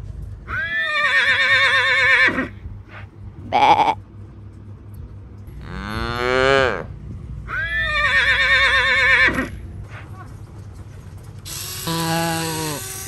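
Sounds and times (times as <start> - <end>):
horse whinnying: 0.5 - 2.6, 3.5 - 4.0, 7.5 - 9.6, 11.5 - 13.0.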